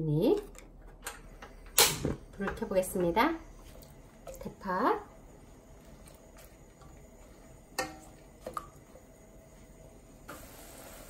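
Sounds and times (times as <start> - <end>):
stock boiling hiss: 1.2 - 11.0
tongs knocking against pot: 7.8 - 8.0.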